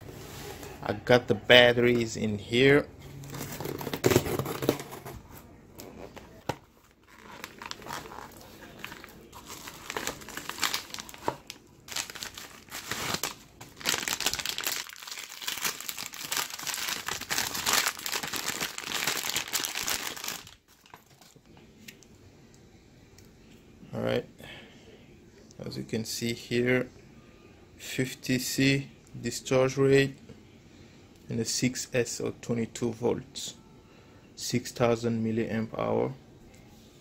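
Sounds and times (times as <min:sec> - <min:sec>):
packaging crinkling and rustling: 0:03.2 - 0:21.5
packaging tearing: 0:07.0 - 0:21.4.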